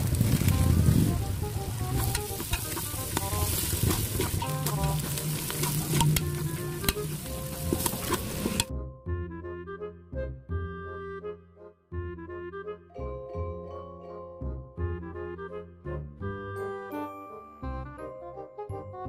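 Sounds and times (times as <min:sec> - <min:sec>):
onions sizzling in hot oil: 0:00.0 - 0:08.7
background music: 0:00.1 - 0:19.0
metal ladle scraping a pot: 0:00.4 - 0:08.7.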